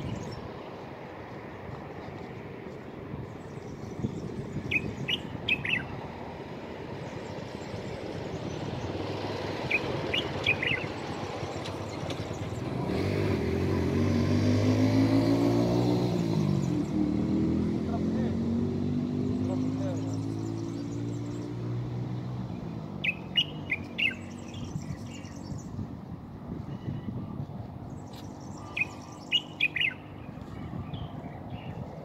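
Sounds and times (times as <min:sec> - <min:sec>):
passing vehicle engine: 0:00.0 - 0:26.6
traffic hum: 0:00.0 - 0:32.0
bird chirping: 0:03.3 - 0:06.1, 0:07.1 - 0:13.1, 0:19.5 - 0:25.8, 0:27.8 - 0:32.0.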